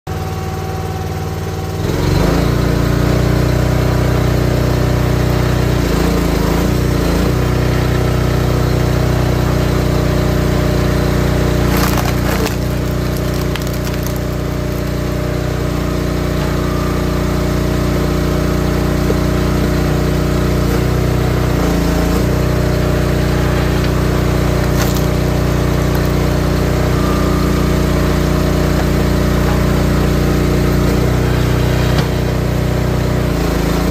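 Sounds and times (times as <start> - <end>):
small gas engine running: 0.1 - 33.9
wood splitting cracks: 11.5 - 15.2, 23.8 - 26.4.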